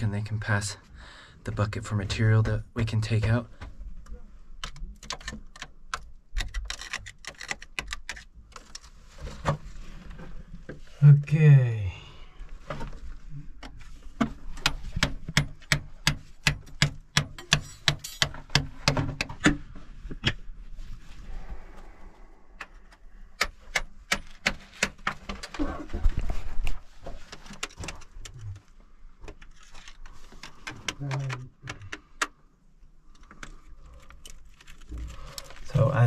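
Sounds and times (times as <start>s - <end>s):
low rumble and scraping: 20.7s - 23.2s.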